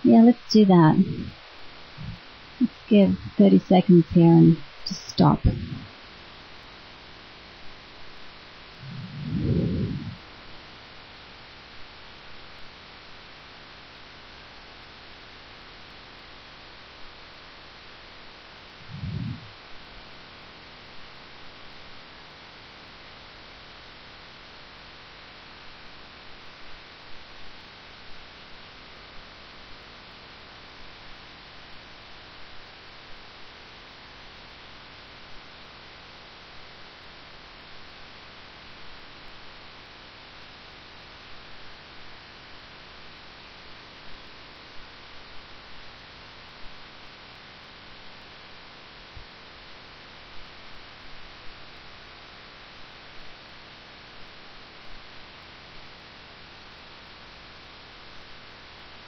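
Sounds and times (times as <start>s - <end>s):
audio line hiss and hum: 0.0s - 59.0s.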